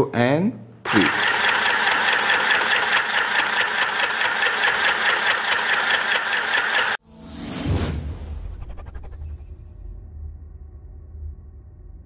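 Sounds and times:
sewing machine stitching: 0:00.9 - 0:07.0.

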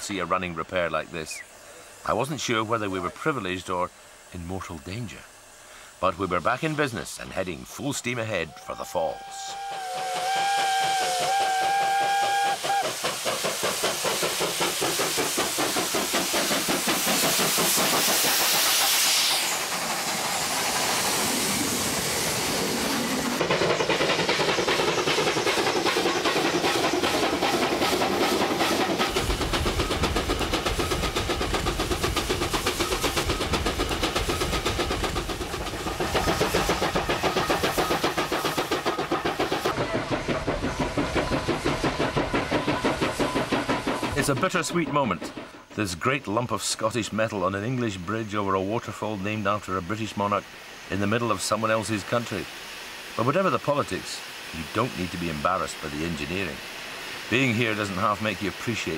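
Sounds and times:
hissing steam: 0:00.0 - 0:58.9
locomotive exhaust chuffs: 0:00.0 - 0:58.9
steam whistle blast: 0:08.5 - 0:13.0.

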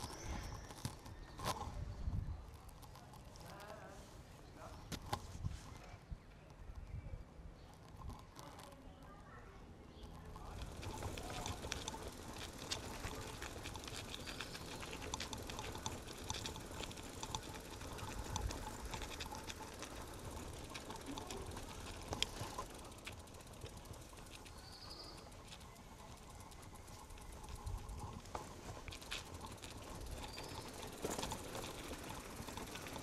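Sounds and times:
bicycle tyres rumbling on cobblestones: 0:00.0 - 0:05.9, 0:06.5 - 0:33.0
bicycle rattling clicks: 0:10.0 - 0:33.0.

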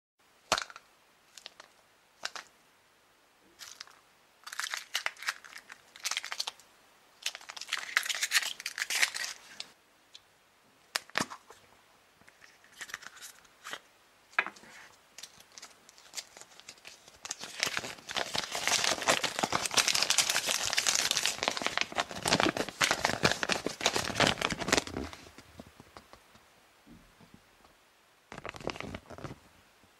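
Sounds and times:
foil and paper crinkling: 0:03.6 - 0:06.6, 0:07.2 - 0:09.7, 0:15.2 - 0:25.4, 0:28.3 - 0:29.4.

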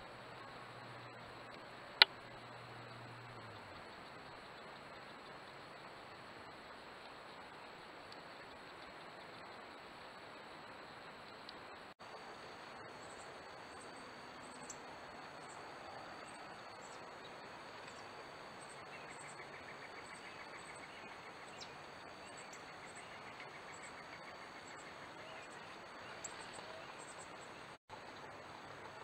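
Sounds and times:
insects droning: 0:00.0 - 0:29.0
insect rapid pulsed trill: 0:02.1 - 0:09.8.

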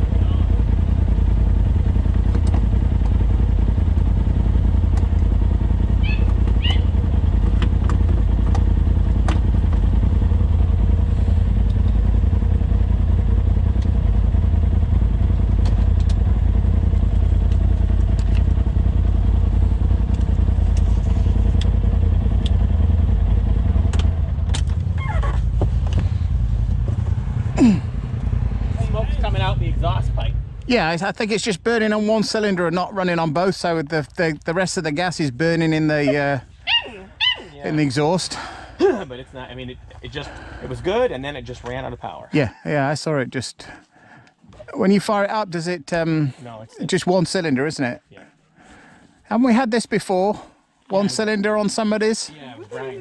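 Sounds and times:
engine idling: 0:00.0 - 0:43.0, 0:43.6 - 0:53.0.

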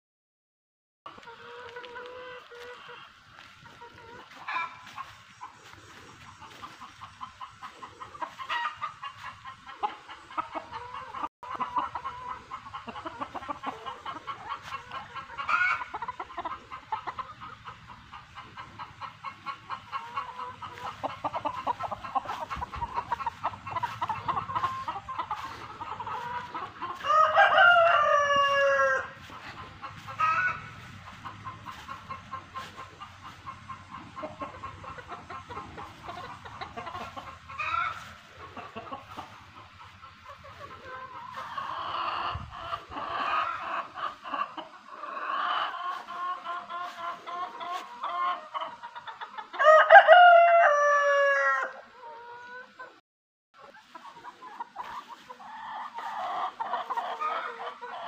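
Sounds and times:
chickens clucking: 0:01.1 - 0:53.0, 0:53.6 - 0:58.0
rooster crowing: 0:27.0 - 0:29.3, 0:49.6 - 0:51.7.

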